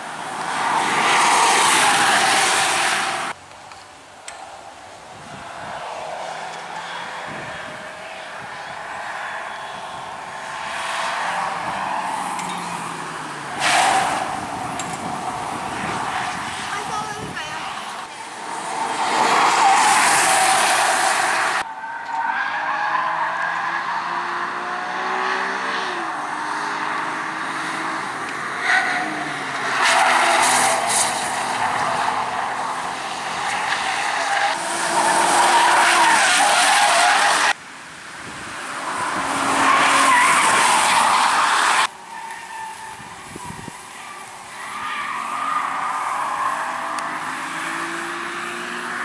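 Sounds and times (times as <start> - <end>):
race car engines revving: 0.0 - 3.4, 4.3 - 49.0
tyres squealing: 38.9 - 49.0.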